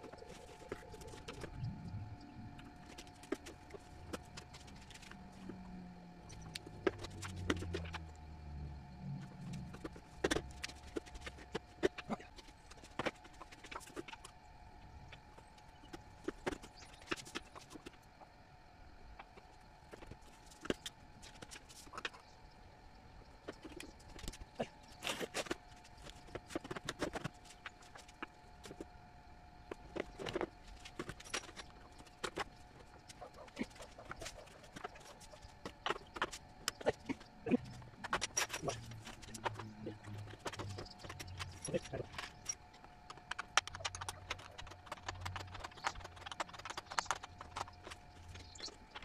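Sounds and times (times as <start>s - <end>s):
low drone: 0.0s - 12.6s
faint steady hum: 0.0s - 49.0s
plastic pipes clicking and knocking: 35.6s - 49.0s.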